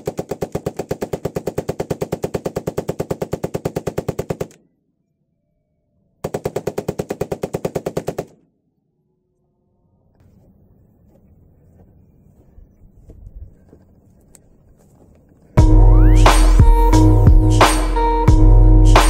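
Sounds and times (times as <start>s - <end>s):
rifle firing automatic bursts: 0.0s - 4.6s, 6.2s - 8.4s.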